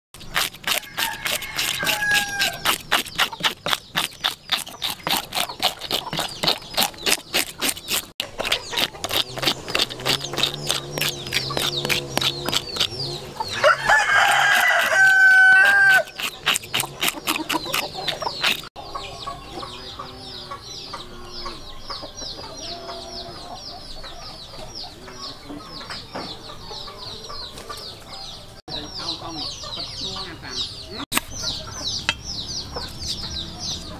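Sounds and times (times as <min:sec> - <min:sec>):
fish scales being scraped: 0:00.2 - 0:13.0, 0:13.9 - 0:18.7
chickens clucking: 0:00.2 - 0:33.9
rooster crowing: 0:00.8 - 0:02.7, 0:13.5 - 0:16.2.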